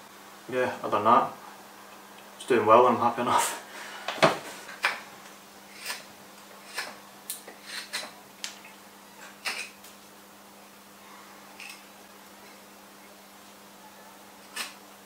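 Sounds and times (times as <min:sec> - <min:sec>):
faint steady hum: 0:00.0 - 0:15.0
knife carving wood: 0:05.7 - 0:08.2.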